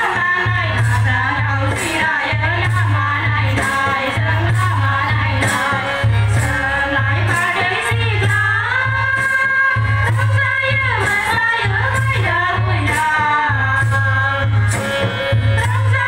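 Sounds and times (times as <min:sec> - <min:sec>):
women singing: 0:00.0 - 0:16.0.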